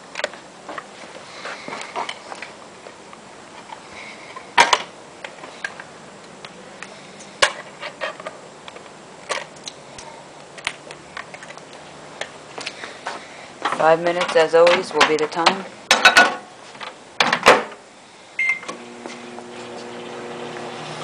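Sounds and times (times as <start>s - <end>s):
handling clicks and knocks: 13.6s - 17.8s.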